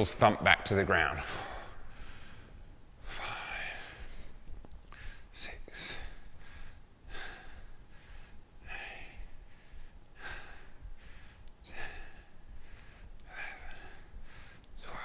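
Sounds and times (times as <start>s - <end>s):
man breathing heavily: 1.2s - 15.0s.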